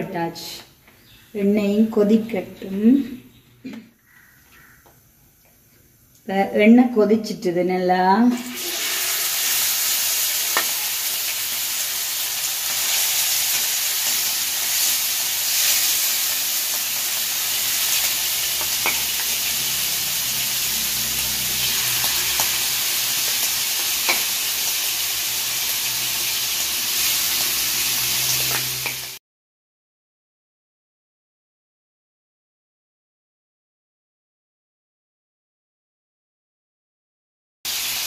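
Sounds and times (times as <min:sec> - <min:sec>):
prawns sizzling in hot oil: 0:08.3 - 0:29.2, 0:37.7 - 0:38.0.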